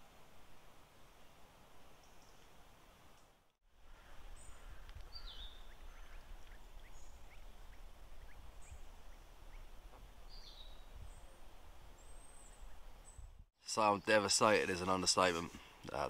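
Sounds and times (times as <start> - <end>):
small birds chirping: 3.9 - 15.0.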